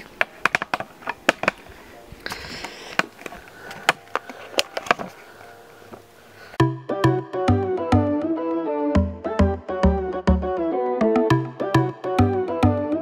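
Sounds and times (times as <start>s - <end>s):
camera handling noise: 2.3s - 5.2s.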